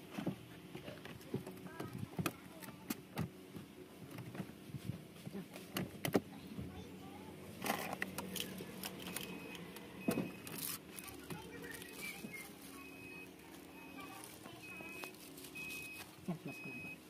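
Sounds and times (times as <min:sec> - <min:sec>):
plastic wrapping crinkling: 0:10.4 - 0:16.3.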